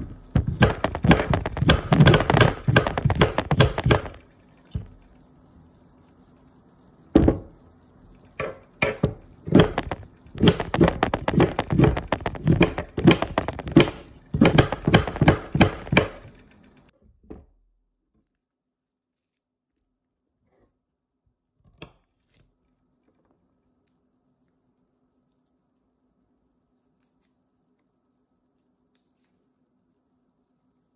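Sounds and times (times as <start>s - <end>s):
knife chopping on cutting board: 0.4s - 4.2s, 8.4s - 16.3s.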